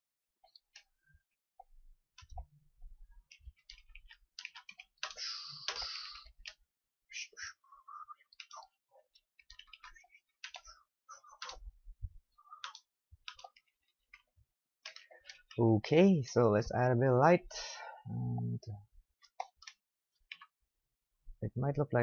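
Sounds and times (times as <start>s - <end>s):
mouse and keyboard clicks: 3.3s - 6.6s, 8.3s - 8.7s, 9.4s - 11.6s, 12.6s - 14.2s.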